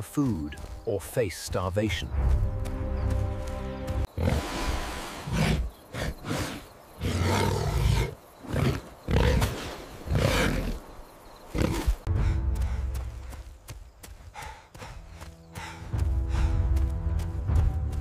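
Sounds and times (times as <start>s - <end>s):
boar roaring: 5.2s - 10.8s.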